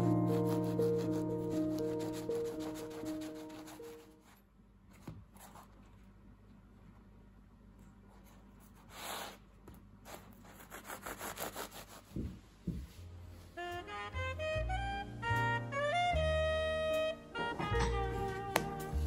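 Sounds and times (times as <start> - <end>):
knife sawing through croissant: 10.1 - 12.1.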